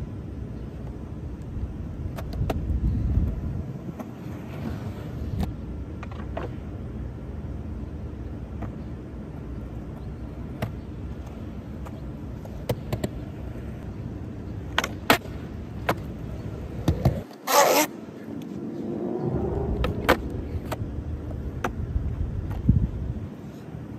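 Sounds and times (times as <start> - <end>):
skateboard wheels rolling on asphalt: 0.0 - 23.9
skateboard clacks: 8.5 - 13.8, 14.6 - 17.9, 19.8 - 22.7.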